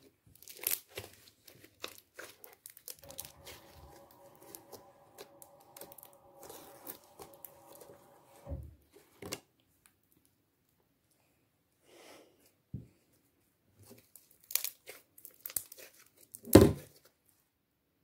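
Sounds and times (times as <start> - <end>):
slime crackling and popping: 1.8 - 8.0.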